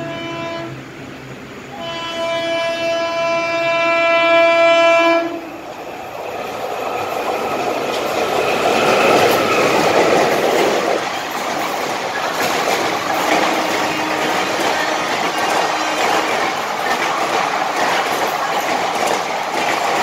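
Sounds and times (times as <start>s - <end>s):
locomotive horn: 0.0s - 0.8s, 1.7s - 5.5s, 13.0s - 16.9s
train wheels rumbling on rails: 0.0s - 20.0s
wheels clacking over rail joints: 5.6s - 20.0s.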